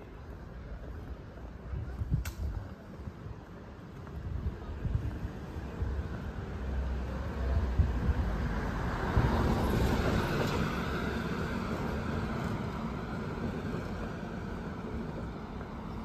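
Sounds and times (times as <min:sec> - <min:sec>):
car passing by: 0:06.5 - 0:15.4.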